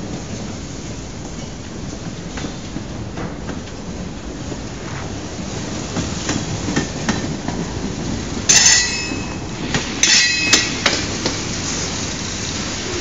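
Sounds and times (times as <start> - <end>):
freight train rumbling past: 0.0 - 13.0
wheels clicking over rail joints: 5.4 - 13.0
wheels squealing on rails: 8.0 - 13.0.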